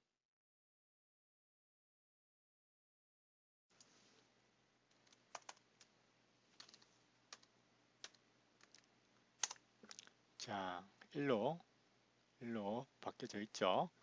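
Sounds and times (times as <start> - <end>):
faint keyboard typing: 4.9 - 10.2.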